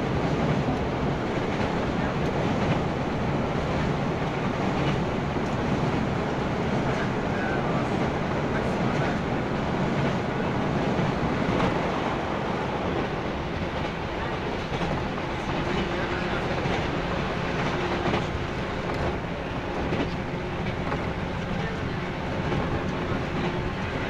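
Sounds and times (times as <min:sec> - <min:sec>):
train wheels rumbling on rail: 0:00.0 - 0:24.0.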